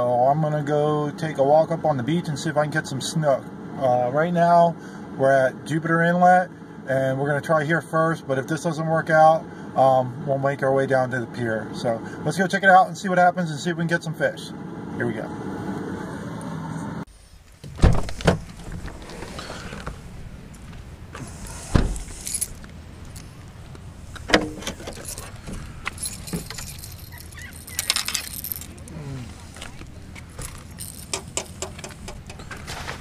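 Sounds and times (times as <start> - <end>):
car doors opening and shutting: 17.4 - 33.0
fishing gear rattling and rustling: 17.5 - 33.0.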